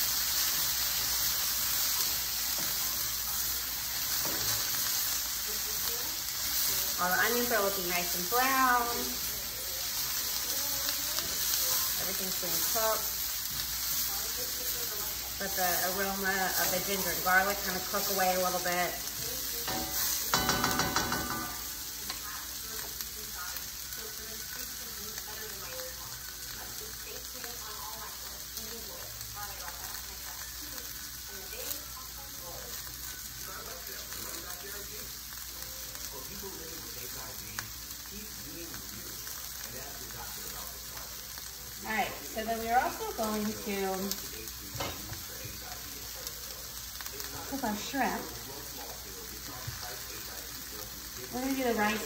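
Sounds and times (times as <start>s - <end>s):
stirring in a pan: 0.0s - 25.3s
vegetables sizzling in a pan: 0.0s - 52.0s.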